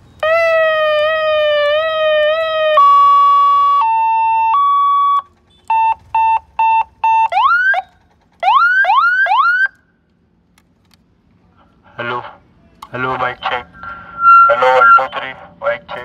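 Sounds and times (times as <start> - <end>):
electronic police siren: 0.2 - 9.8, 13.5 - 15.4
short siren beeps: 2.4 - 8.8, 13.7 - 15.2.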